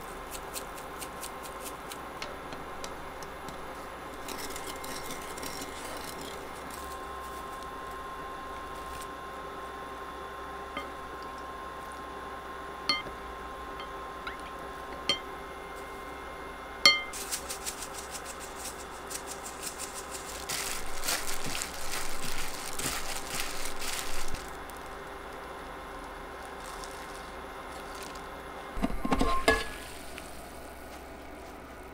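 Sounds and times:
crinkly rustling of gloved hands: 4.1s - 9.2s, 17.1s - 28.5s, 29.8s - 31.9s
wooden spoon knocking glass bowl: 16.9s - 17.1s.

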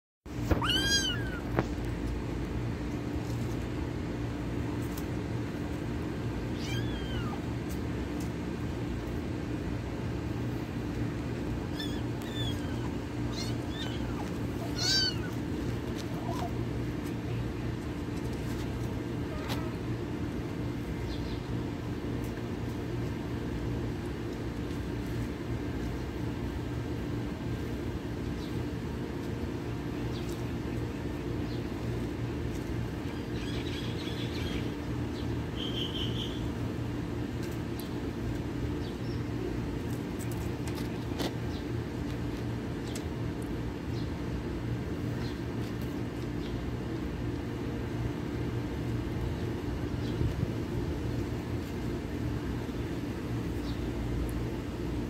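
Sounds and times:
low mechanical hum: 0.3s - 55.0s
bird chirps: 35.6s - 36.4s.

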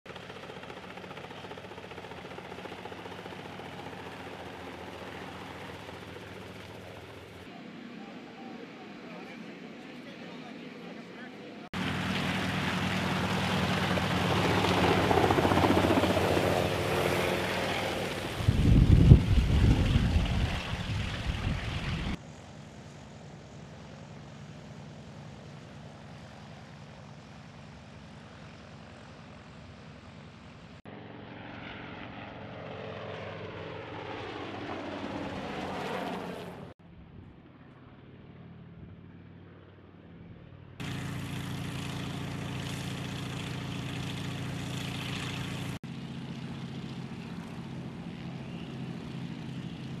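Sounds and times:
helicopter engine and rotor: 0.1s - 36.8s, 37.4s - 50.0s.

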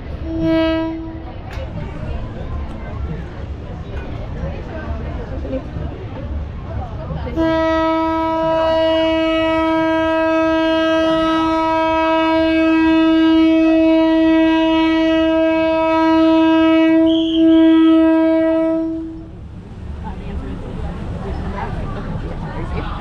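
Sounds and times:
train horn long steady note: 0.1s - 1.4s, 7.3s - 19.4s.

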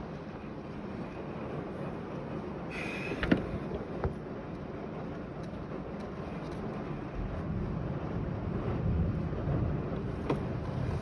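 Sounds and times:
wind buffeting microphone: 0.0s - 11.0s
storm wind rushing: 6.8s - 11.0s.

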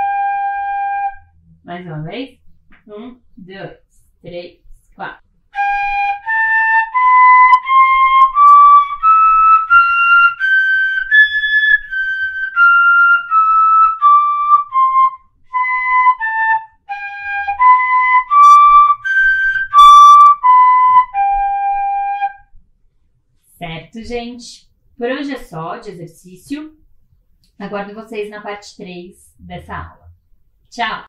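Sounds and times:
wooden fife notes: 5.6s - 22.4s.

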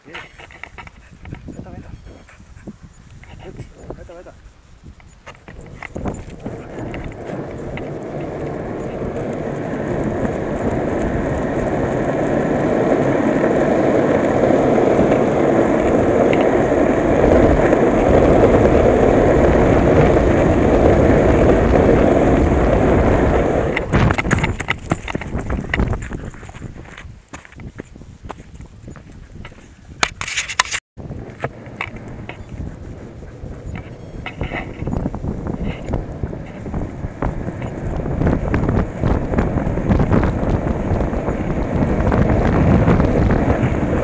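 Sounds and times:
longboard wheels rolling on asphalt: 0.0s - 44.0s
scuffs and footsteps on road: 4.5s - 18.6s, 23.8s - 42.0s.

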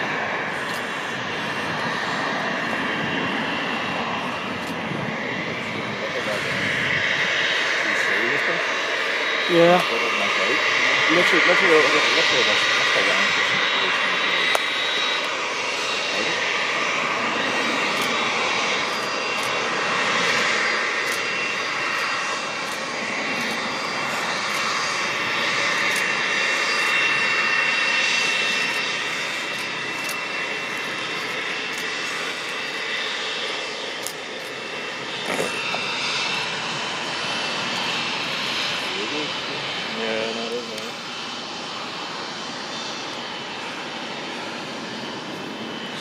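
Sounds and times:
jet engines running: 0.0s - 46.0s.

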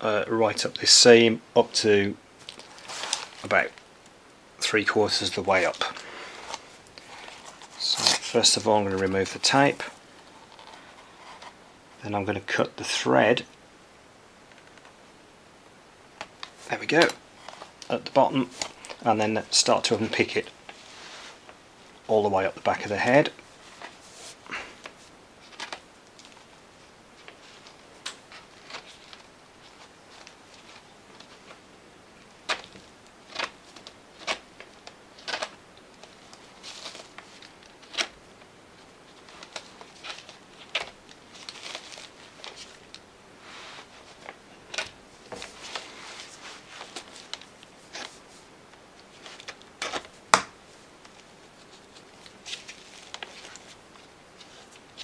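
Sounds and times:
soft rustling of fur: 20.5s - 22.0s, 23.4s - 25.6s, 38.8s - 44.4s, 45.1s - 49.6s.

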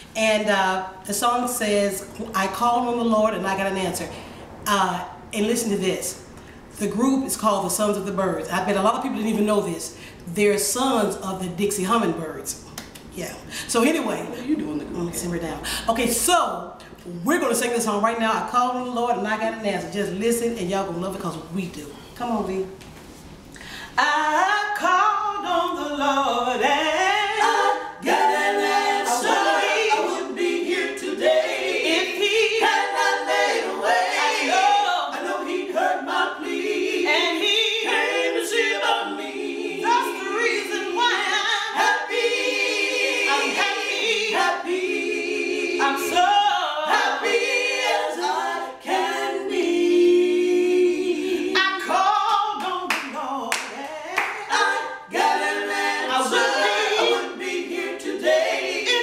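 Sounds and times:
women singing a cappella gospel: 0.0s - 22.7s, 23.8s - 59.0s.

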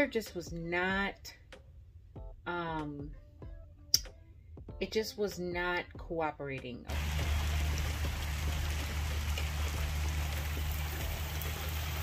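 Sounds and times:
rain on pavement: 6.9s - 12.0s.

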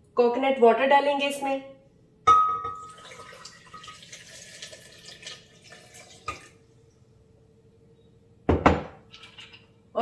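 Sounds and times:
liquid pouring into a blender jar: 2.8s - 6.6s.

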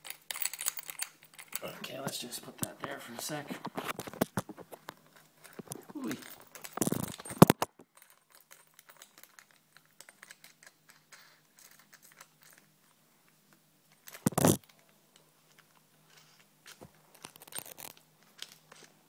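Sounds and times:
clicks and metallic rattles: 0.0s - 12.7s.

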